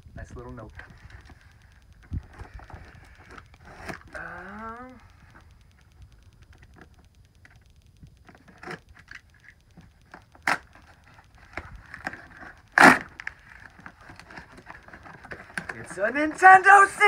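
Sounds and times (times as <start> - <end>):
tape tearing off box flap: 10.4 - 10.8, 11.5 - 16.8.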